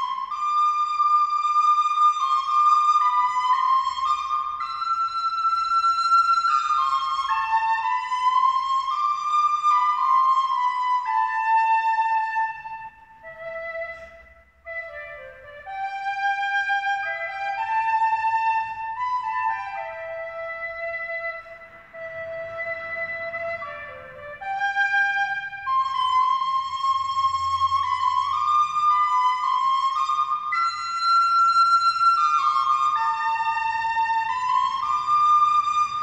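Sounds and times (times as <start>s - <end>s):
slow woodwind melody: 0.0s - 36.0s.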